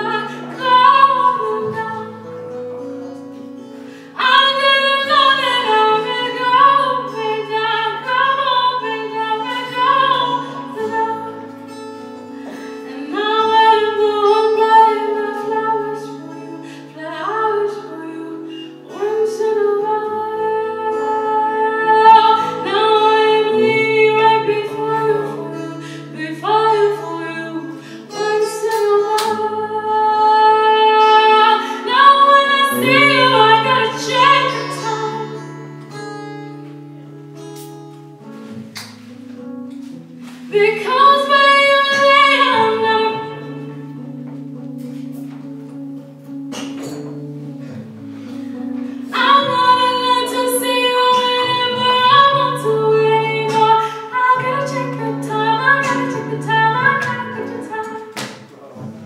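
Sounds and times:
acoustic guitar: 0.0s - 59.0s
woman singing long notes: 12.9s - 35.5s.

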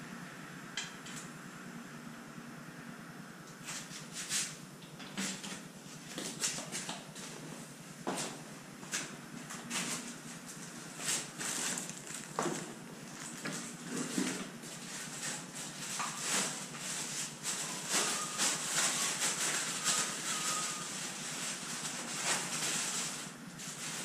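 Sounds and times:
packing material rustling: 11.0s - 14.0s, 14.6s - 24.0s.

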